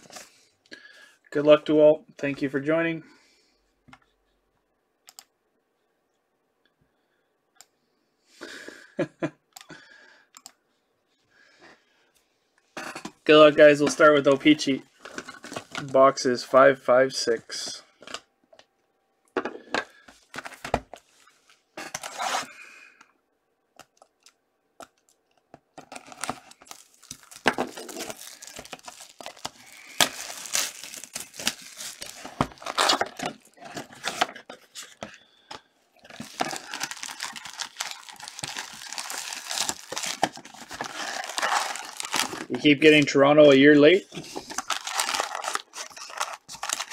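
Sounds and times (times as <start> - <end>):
card packs crinkling: 13.3 - 16.2, 24.9 - 46.9
packaging tearing: 25.9 - 34.3, 36.1 - 42.5, 44.4 - 46.9.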